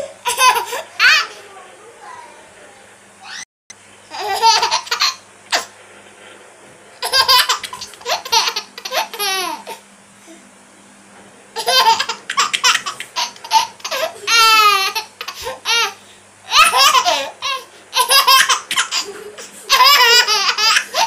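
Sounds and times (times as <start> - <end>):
baby laughing: 0.2 - 1.4, 4.1 - 5.7, 7.0 - 9.8, 11.6 - 21.0.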